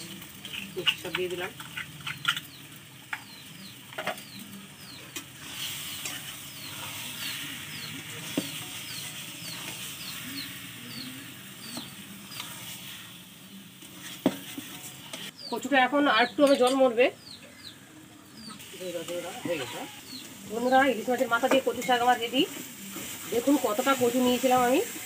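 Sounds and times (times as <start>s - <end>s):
metal spatula scraping a pan: 0.0s - 3.3s, 5.1s - 15.3s
food sizzling in a metal pan: 0.0s - 25.0s.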